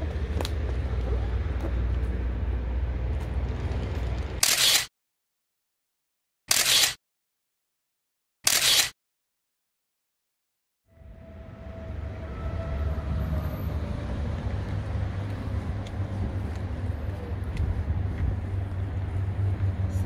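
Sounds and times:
low outdoor rumble: 0.0 - 4.4, 11.0 - 20.0
camera shutter clicks: 4.4 - 4.9, 6.5 - 7.0, 8.4 - 9.0.

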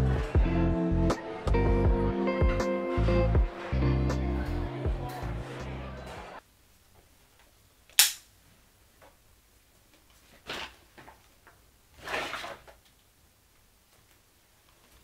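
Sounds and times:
loud sharp click: 7.9 - 8.3.

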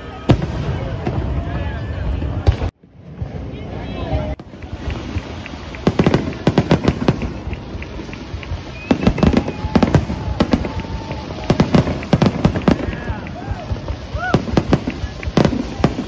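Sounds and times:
fireworks bangs and crackles: 0.0 - 16.0.

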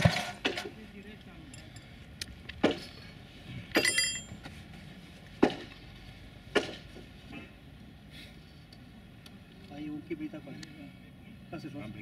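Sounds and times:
metallic rattle and ringing: 3.7 - 4.4
sharp metallic clanks: 3.7 - 4.4.

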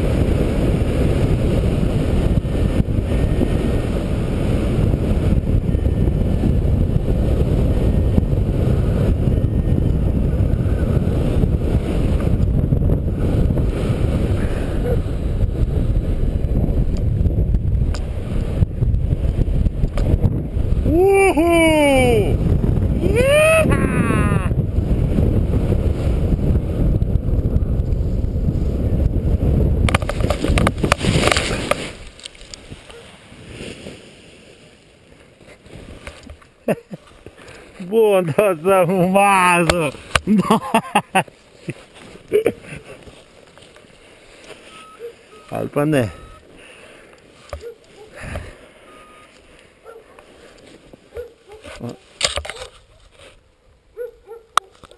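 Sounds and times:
wind rushing over microphone: 0.0 - 34.8, 35.4 - 53.1
knocks and thumps on snow: 30.0 - 32.2.

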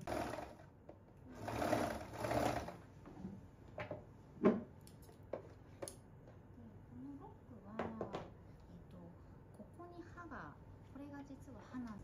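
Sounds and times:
overlock sewing machine stitching: 0.0 - 0.7, 1.3 - 2.8.

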